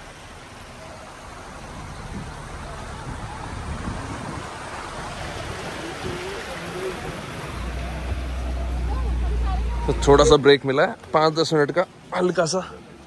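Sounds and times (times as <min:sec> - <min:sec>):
vehicles at a crowded stop: 0:00.0 - 0:13.0.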